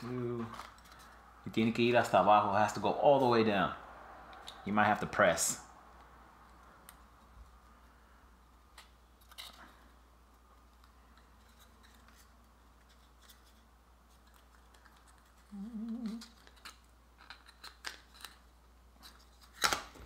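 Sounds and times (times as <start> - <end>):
low steady hum: 0.0 - 20.0
paper fasteners clicking and scratching: 10.6 - 20.0.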